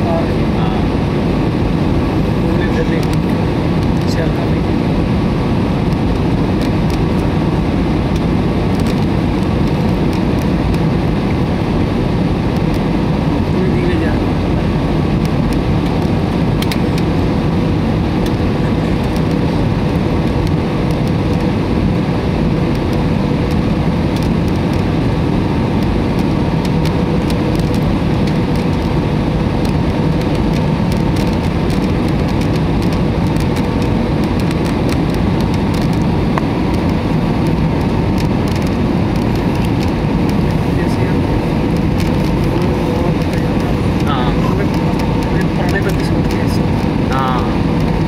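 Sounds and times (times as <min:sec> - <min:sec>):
airplane cabin engine rumble: 0:00.0 - 0:48.0.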